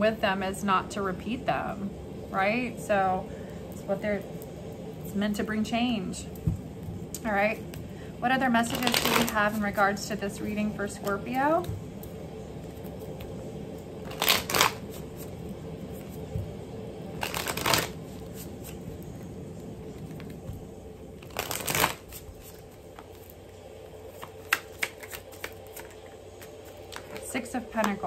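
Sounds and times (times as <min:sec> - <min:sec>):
cards being riffle shuffled: 0:08.6 - 0:09.9, 0:14.0 - 0:16.3, 0:17.2 - 0:19.1, 0:21.2 - 0:23.4, 0:24.0 - 0:28.0
cards snapping: 0:08.7 - 0:09.6, 0:14.1 - 0:15.3, 0:17.2 - 0:18.8, 0:21.2 - 0:23.3, 0:24.1 - 0:28.0.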